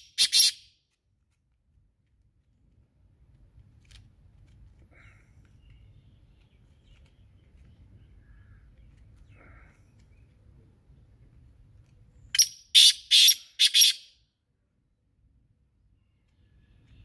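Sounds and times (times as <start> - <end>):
faint bird chirps: 5.0 - 11.1, 15.9 - 17.0.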